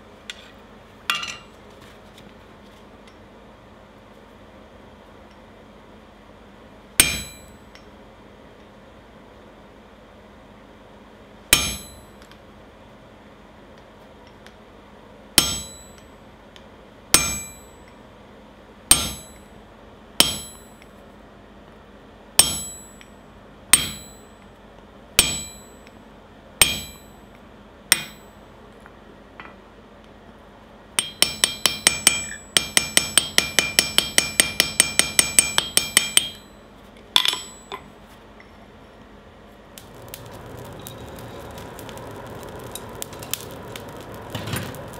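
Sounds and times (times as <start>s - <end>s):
hammer striking metal punch: 7.0s - 7.8s, 11.5s - 12.2s, 15.4s - 16.1s, 17.2s - 17.8s, 18.9s - 19.5s, 20.2s - 20.9s, 22.4s - 23.2s, 23.8s - 24.4s, 25.2s - 25.9s, 26.6s - 27.2s, 27.9s - 28.3s, 31.0s - 36.6s, 37.2s - 37.9s.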